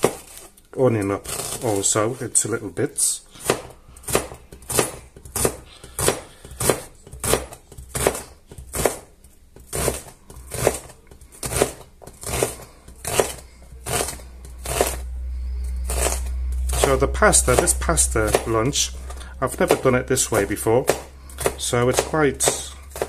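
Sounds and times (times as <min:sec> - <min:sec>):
knife dicing onion on cutting board: 0:03.4 - 0:15.0, 0:15.9 - 0:18.6, 0:19.6 - 0:23.0.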